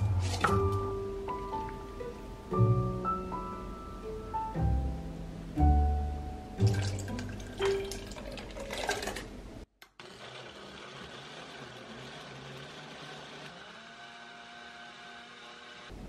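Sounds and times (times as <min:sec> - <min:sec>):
liquid pouring into cup: 0:06.7 - 0:09.3
blender motor running: 0:09.8 - 0:16.0.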